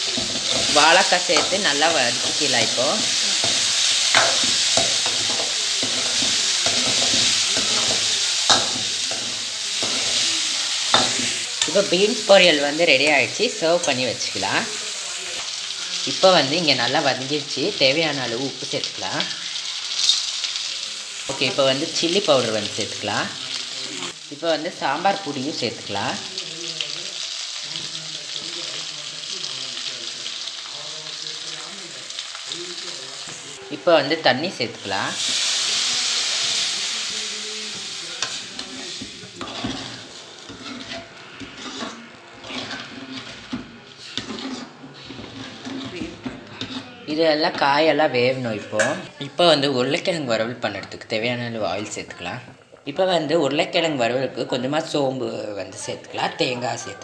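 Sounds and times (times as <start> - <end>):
metal ladle scraping pan: 0.0 - 14.4, 37.7 - 47.7
vegetables sizzling in oil: 0.0 - 57.0.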